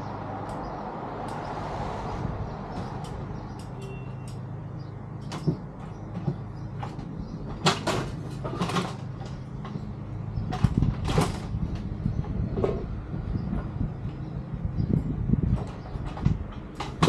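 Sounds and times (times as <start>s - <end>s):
knocks and clatters: 5.2s - 12.9s, 15.4s - 17.0s.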